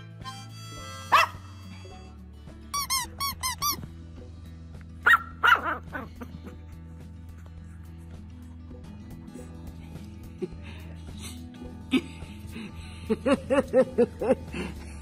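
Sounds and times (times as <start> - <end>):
background music: 0.0 - 15.0
small dog yapping: 1.1 - 1.4, 5.0 - 6.1.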